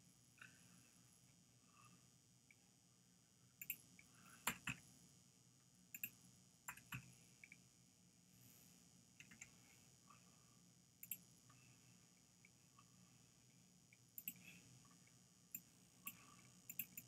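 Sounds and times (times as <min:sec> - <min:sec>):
faint steady hum: 0:00.0 - 0:17.0
computer mouse clicking: 0:03.6 - 0:04.8, 0:05.9 - 0:07.6, 0:09.2 - 0:09.6, 0:11.0 - 0:11.2, 0:13.9 - 0:17.0.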